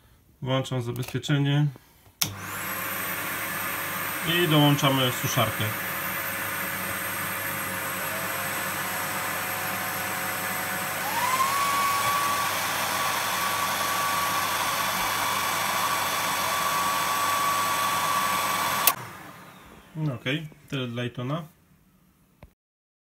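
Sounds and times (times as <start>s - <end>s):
hair dryer whine: 2.2s - 20.4s
vacuum cleaner running: 2.2s - 20.4s.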